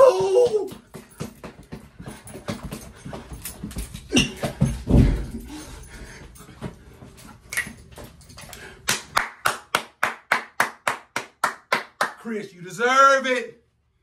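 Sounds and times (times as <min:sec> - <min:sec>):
rhythmic hand clapping: 0:08.8 - 0:12.3.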